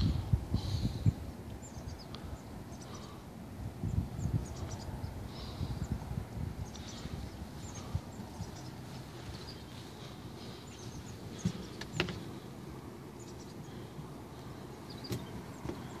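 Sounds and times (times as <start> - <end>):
small birds chirping: 0.0 - 16.0
wind rumbling on microphone: 0.0 - 16.0.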